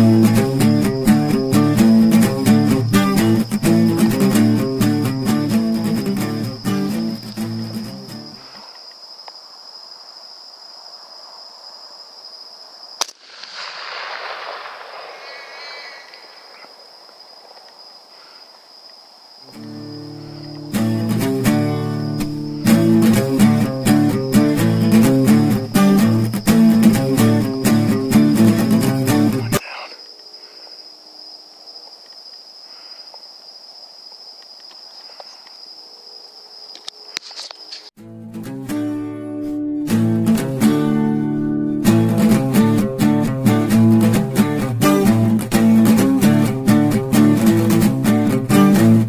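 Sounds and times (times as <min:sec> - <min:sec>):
night insects chorus: 0:00.0 - 0:38.0, 0:39.3 - 0:49.0
crickets trilling: 0:00.0 - 0:49.0
rifle shot: 0:13.0 - 0:16.7.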